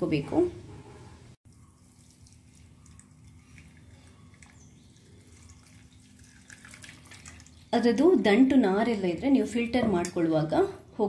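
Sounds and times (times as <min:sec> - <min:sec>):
liquid dripping and trickling: 0:01.4 - 0:08.4.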